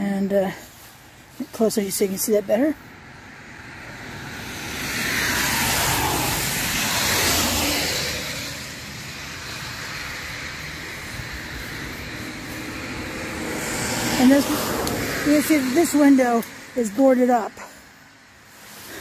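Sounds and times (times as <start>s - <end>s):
steady road hiss: 0.0s - 19.0s
car passing at speed: 2.9s - 19.0s.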